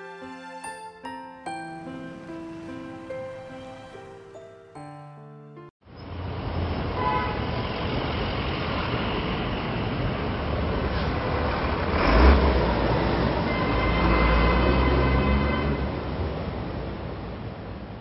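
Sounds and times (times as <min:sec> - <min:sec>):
motorcycle and car engines rumbling: 0:06.0 - 0:17.5.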